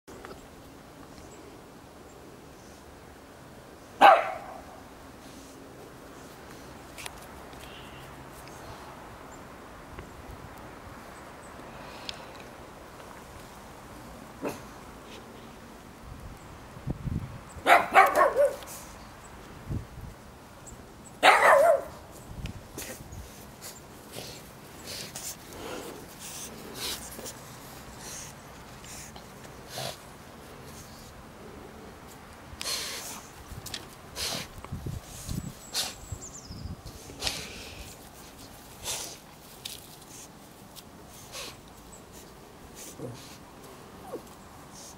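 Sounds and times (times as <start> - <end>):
dog barking: 4.0 - 4.6, 17.6 - 18.6, 21.2 - 22.0
dogs sniffing and snuffling: 4.0 - 9.0, 21.2 - 44.9.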